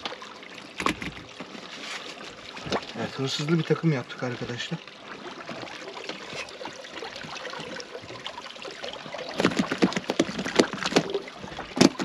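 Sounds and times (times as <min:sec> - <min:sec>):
sharp splashes and knocks: 0:00.0 - 0:03.5, 0:09.3 - 0:12.0
water sloshing: 0:00.0 - 0:12.0.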